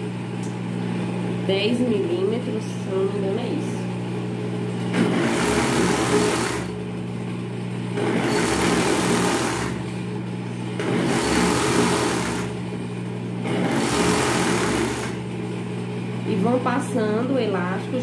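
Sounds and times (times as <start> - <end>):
overlock sewing machine stitching: 4.8 - 6.8, 8.0 - 9.9, 10.8 - 12.6, 13.4 - 15.3.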